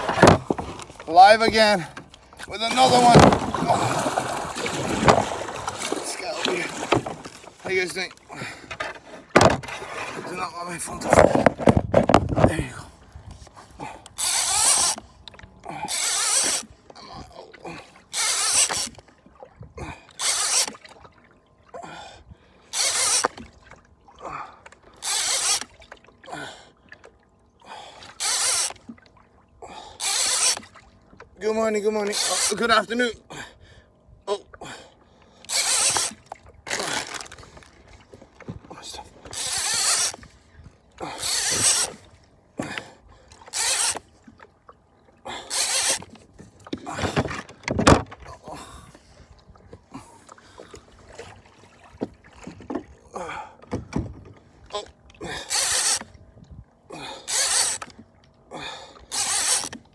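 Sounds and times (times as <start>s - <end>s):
fishing reel whirring and ratcheting: 14.2s - 15.0s, 15.8s - 16.7s, 18.1s - 18.9s, 20.2s - 20.8s, 22.7s - 23.3s, 25.0s - 25.7s, 28.1s - 28.8s, 30.0s - 30.7s, 35.5s - 37.4s, 39.3s - 40.3s, 41.0s - 42.0s, 43.5s - 44.1s, 45.5s - 46.1s, 55.4s - 56.1s, 57.2s - 57.9s, 59.1s - 59.8s.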